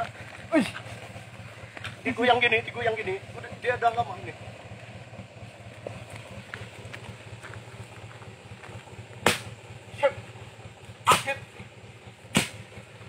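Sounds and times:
stick striking snake: 0:09.2 - 0:09.6, 0:12.3 - 0:12.7.

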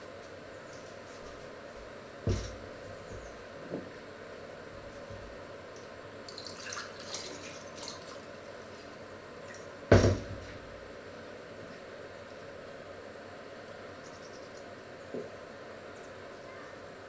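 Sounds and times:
loud thump: 0:02.2 - 0:02.6, 0:09.9 - 0:10.6.

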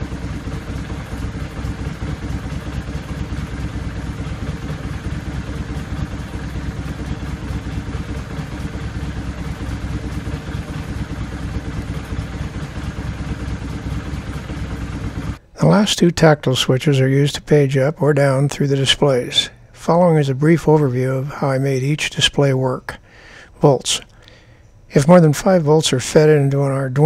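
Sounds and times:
motorcycle engine idling: 0:00.0 - 0:16.4.

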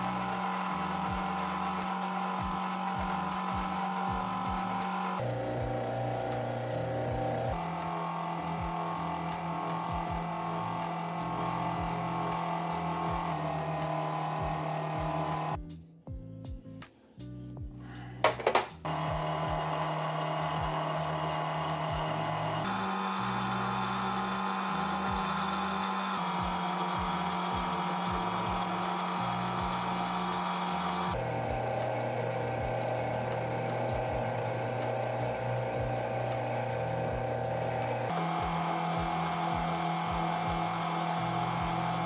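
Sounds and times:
lathe motor and gear hum: 0:00.0 - 0:15.6, 0:18.9 - 0:42.0
turning tool cutting metal: 0:00.0 - 0:15.6, 0:18.3 - 0:42.0.

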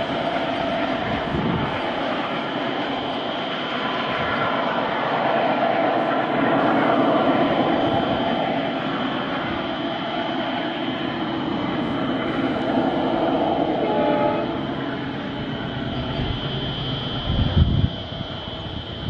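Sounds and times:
diesel locomotives running: 0:00.0 - 0:19.0
horn-like tone: 0:13.8 - 0:14.6.

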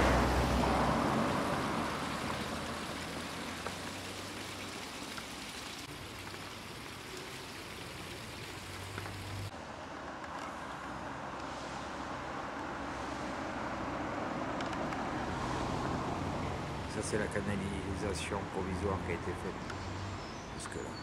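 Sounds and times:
car driving past: 0:00.0 - 0:04.2, 0:11.0 - 0:17.0
outdoor noise hiss: 0:00.0 - 0:21.0.

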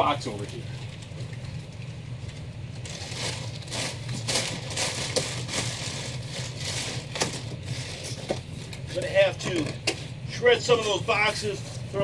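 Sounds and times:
packing paper crumpling: 0:02.8 - 0:08.6.

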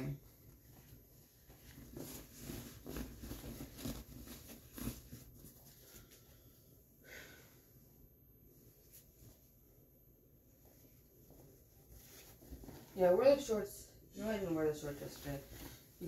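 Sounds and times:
clothes and bag rustling: 0:00.0 - 0:06.5, 0:10.6 - 0:16.0.

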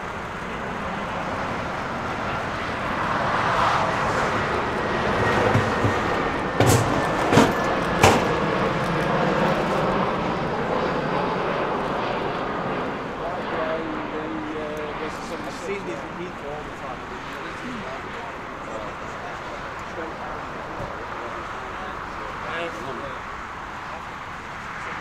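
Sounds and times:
jet airliner engines roaring: 0:00.0 - 0:25.0
sharp knocks: 0:05.4 - 0:08.4.

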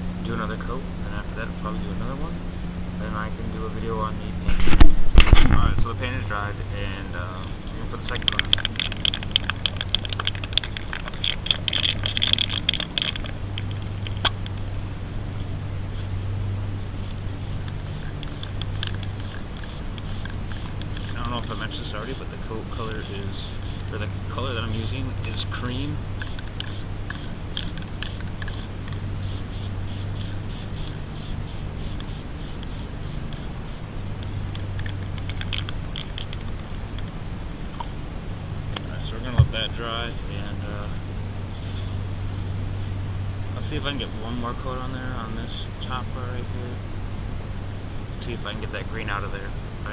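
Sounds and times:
low steady hum: 0:00.0 - 0:49.9
spray paint can rattling: 0:08.0 - 0:14.6, 0:17.0 - 0:33.8, 0:34.5 - 0:36.7.

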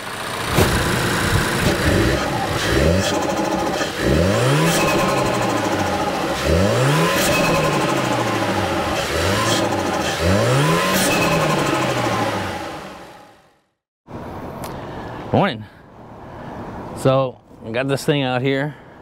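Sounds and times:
turbocharged car engine revving: 0:00.0 - 0:13.5.

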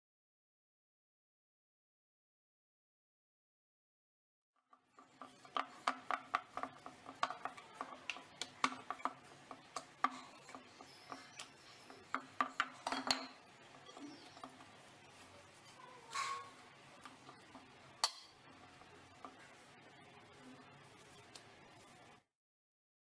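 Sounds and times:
rolling pin knocking on wooden board: 0:05.0 - 0:11.3.

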